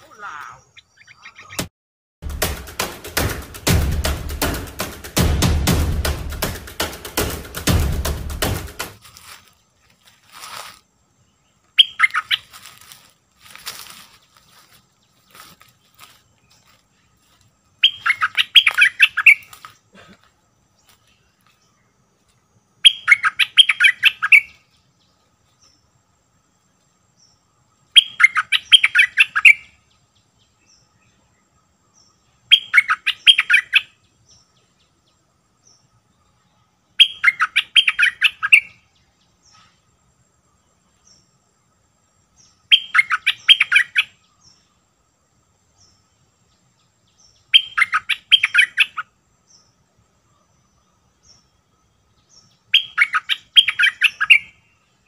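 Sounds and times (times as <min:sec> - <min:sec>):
bird singing bubbling phrase: 0:00.0 - 0:01.6.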